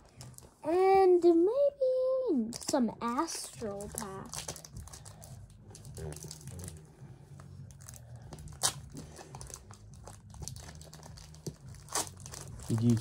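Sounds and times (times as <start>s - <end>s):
foil wrapper crinkling: 3.4s - 6.8s, 7.7s - 13.0s
sharp foil crackle: 3.4s - 6.8s, 7.7s - 13.0s.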